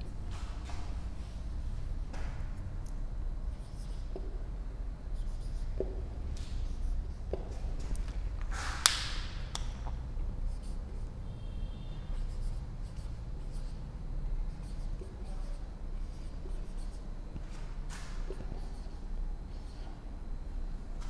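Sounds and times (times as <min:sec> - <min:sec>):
low hum: 0:00.0 - 0:21.0
marker writing on whiteboard: 0:03.5 - 0:04.5, 0:05.2 - 0:08.1, 0:09.6 - 0:13.9, 0:14.5 - 0:20.0.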